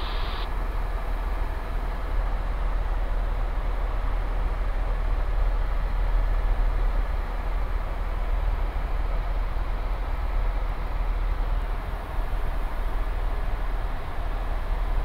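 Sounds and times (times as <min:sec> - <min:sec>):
helicopter cabin rumble: 0:00.0 - 0:00.5.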